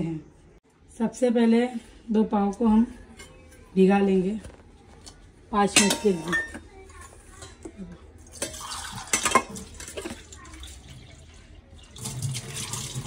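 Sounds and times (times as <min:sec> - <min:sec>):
dish knocking and clinking: 0:05.7 - 0:06.7
water splashing in a bowl: 0:08.3 - 0:13.0.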